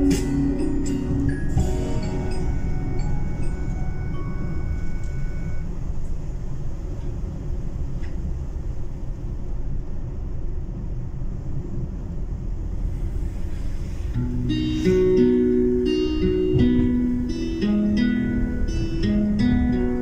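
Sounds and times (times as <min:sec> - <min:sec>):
chime-like mallet instrument: 0:00.0 - 0:05.6
car cabin road and engine noise: 0:00.0 - 0:20.0.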